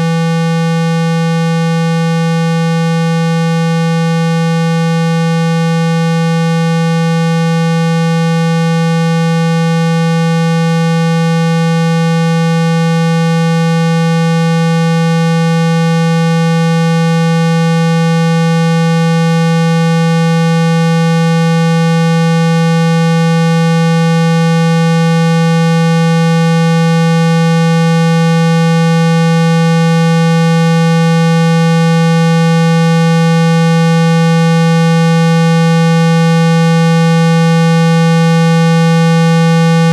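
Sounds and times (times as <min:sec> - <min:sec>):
continuous loud low tone: 0:35.3 - 0:39.9.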